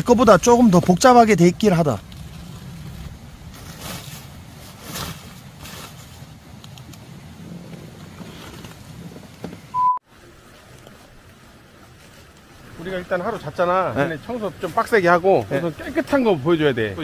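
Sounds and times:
low steady rumble: 0:00.0 - 0:15.2
short electronic beep: 0:09.7 - 0:10.0.

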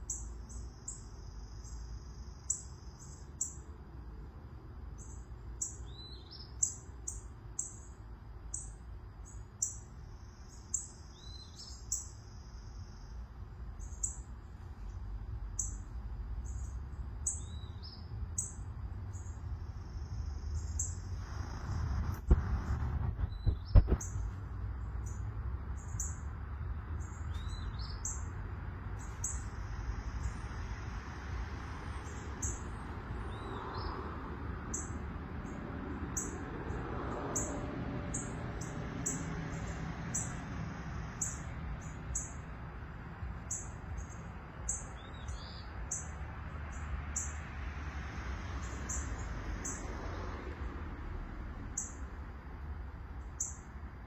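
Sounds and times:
songbirds chirping: 0:00.0 - 0:54.0
low steady rumble: 0:12.1 - 0:33.5.

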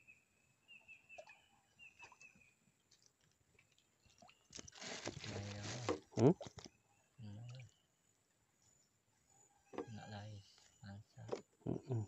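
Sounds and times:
rustling scraping of fish landed: 0:04.6 - 0:06.7.

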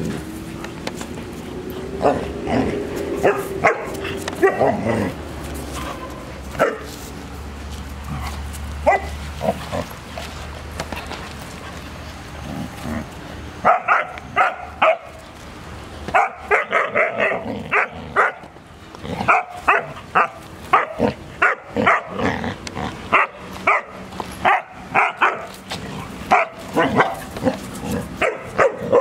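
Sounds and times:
dogs barking and yipping: 0:00.0 - 0:29.0.

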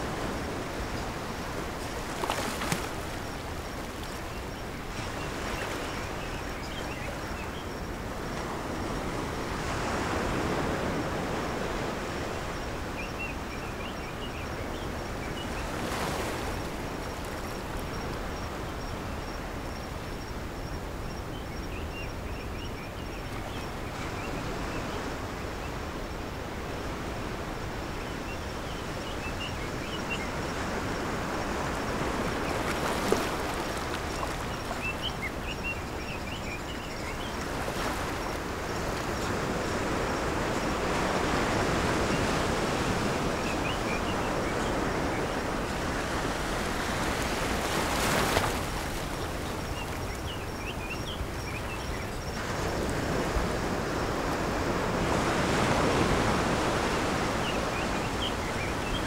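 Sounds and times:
waves breaking on beach: 0:00.0 - 0:13.5, 0:28.9 - 0:59.0.

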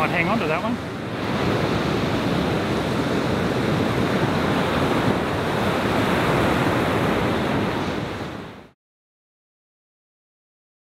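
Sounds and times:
wind buffeting microphone: 0:00.0 - 0:08.7
surf breaking on a beach: 0:00.0 - 0:08.8.

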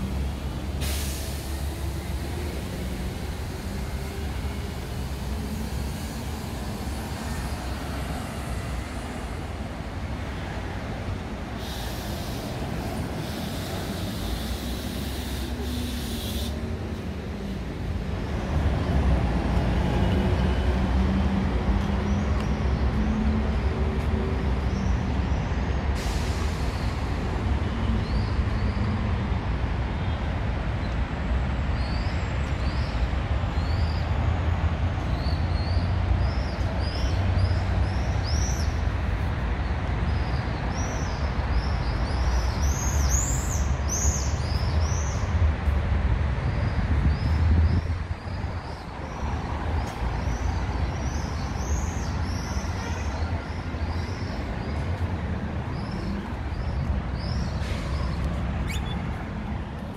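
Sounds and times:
street traffic rumbling: 0:00.0 - 0:59.9
short hiss: 0:00.8 - 0:01.6, 0:11.6 - 0:16.6
birds chirping: 0:48.3 - 0:59.2.

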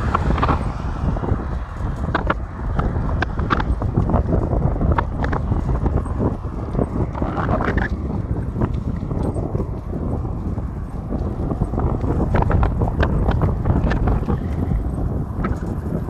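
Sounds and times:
bicycle tyre rumble on asphalt: 0:00.0 - 0:16.0
wind buffeting microphone: 0:00.0 - 0:16.0
clicks and rattles: 0:02.0 - 0:09.4.

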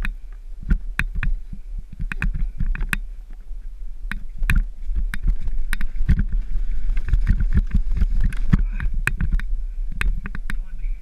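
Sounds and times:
wind rumble on microphone: 0:00.0 - 0:11.0
bike clacking over bumps: 0:04.1 - 0:10.7.

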